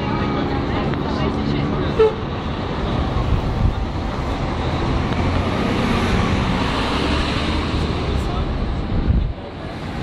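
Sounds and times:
city street traffic: 0.0 - 10.0.

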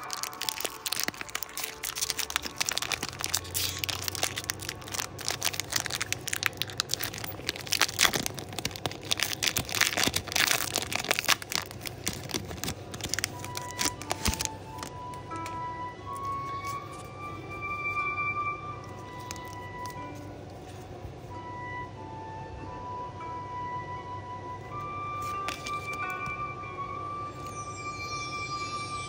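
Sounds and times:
foil wrapper crinkling: 0.0 - 15.2, 18.9 - 20.8, 25.2 - 26.2.

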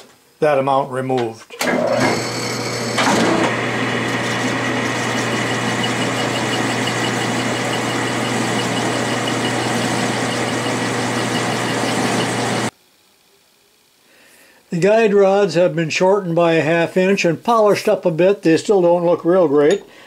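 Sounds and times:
metal lathe running: 1.7 - 12.7.

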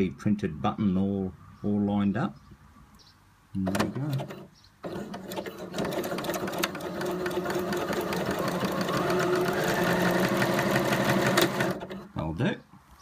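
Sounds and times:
sewing machine running: 3.7 - 12.1.

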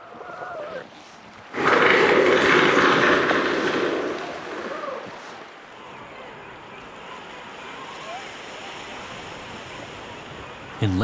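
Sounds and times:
seal gliding call: 0.0 - 2.9, 4.0 - 10.9.

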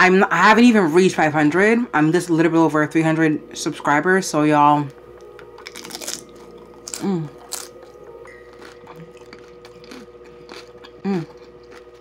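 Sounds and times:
crunching taco shell: 5.6 - 7.9, 8.6 - 12.0.

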